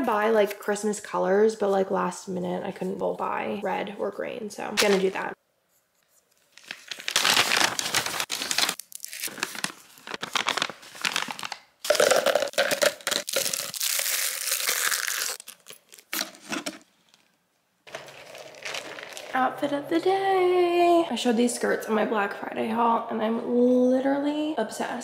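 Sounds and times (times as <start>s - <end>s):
plastic wrappers crinkling: 6.2s - 19.4s.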